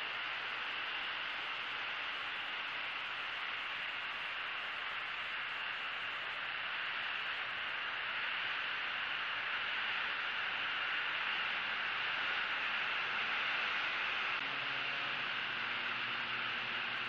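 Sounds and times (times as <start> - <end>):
steady microphone hiss: 0.0 - 17.0.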